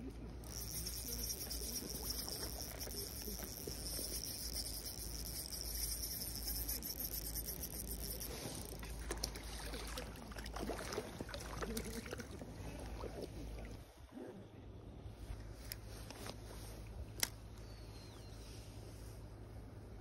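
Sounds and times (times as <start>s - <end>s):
fishing reel whirring: 0.3s - 10.0s
water splashing: 7.9s - 13.8s.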